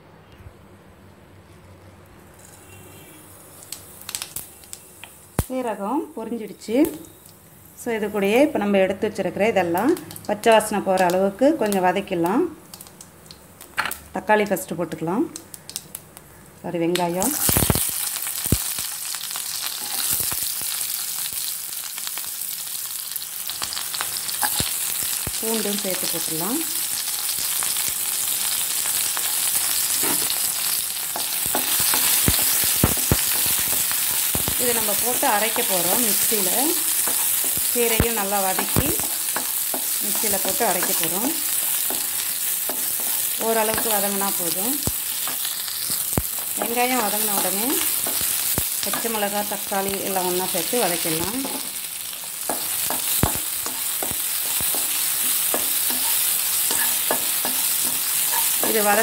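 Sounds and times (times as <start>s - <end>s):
onion and garlic sizzling in oil: 2.2s - 59.0s
spatula scraping and knocking pan: 52.4s - 59.0s.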